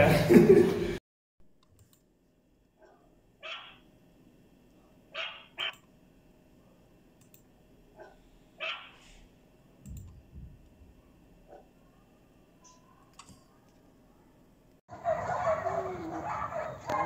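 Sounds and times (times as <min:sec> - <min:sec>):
puppies yelping: 0:02.8 - 0:03.8, 0:05.2 - 0:05.8, 0:08.6 - 0:09.2, 0:14.9 - 0:17.0
puppy yipping: 0:03.4 - 0:03.8, 0:05.2 - 0:05.8, 0:08.6 - 0:09.0.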